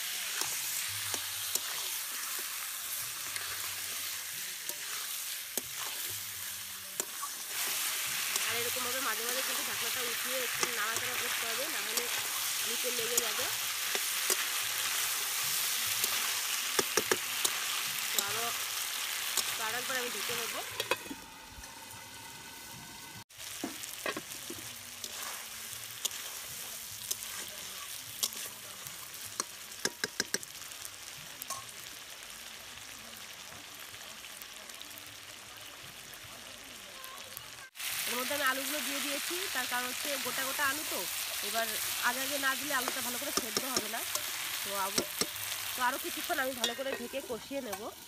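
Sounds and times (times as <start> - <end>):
meat sizzling in a pan: 0.0 - 48.0
spatula scraping a pan: 1.5 - 2.4, 3.1 - 6.2
spatula clicking against pan: 29.4 - 30.5.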